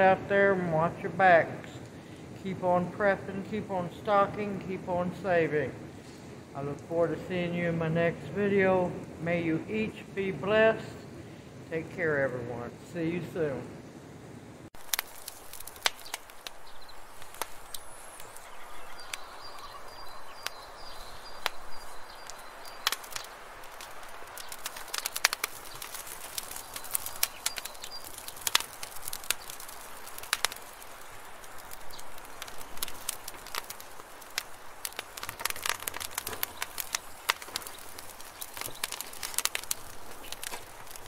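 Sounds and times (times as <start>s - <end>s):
wood fire crackling and popping: 0.0s - 12.0s, 14.7s - 41.0s.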